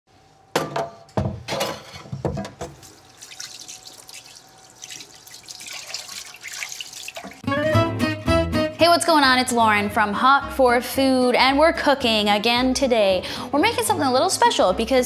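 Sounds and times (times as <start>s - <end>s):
things clattering in a sink: 0.6s - 7.5s
water running into a sink: 2.6s - 7.5s.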